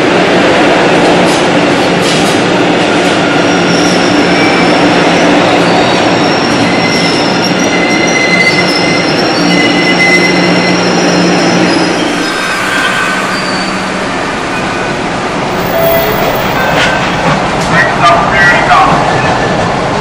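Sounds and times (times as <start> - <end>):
subway train rumble and hum: 0.0 - 20.0
high-pitched wheel squeal: 5.6 - 14.8, 15.5 - 17.0.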